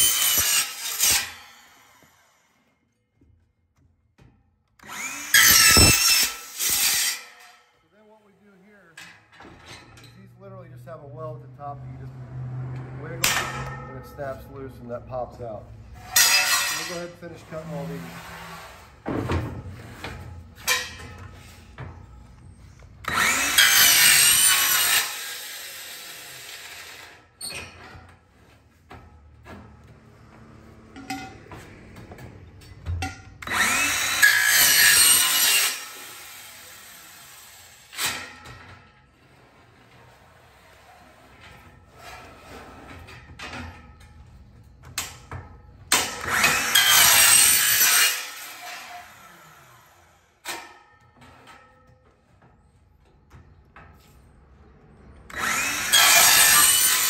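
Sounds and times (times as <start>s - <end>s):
power saw cutting metal: 0.0s - 2.5s, 4.8s - 7.8s, 10.0s - 22.1s, 22.9s - 27.9s, 33.0s - 43.9s, 45.9s - 51.7s, 55.3s - 57.0s.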